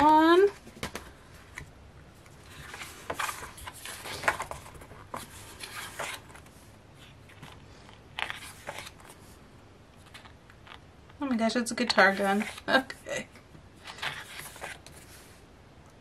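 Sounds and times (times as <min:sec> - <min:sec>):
paper pages rustling: 0:00.0 - 0:09.4, 0:10.0 - 0:10.8, 0:11.9 - 0:12.8, 0:13.8 - 0:15.4.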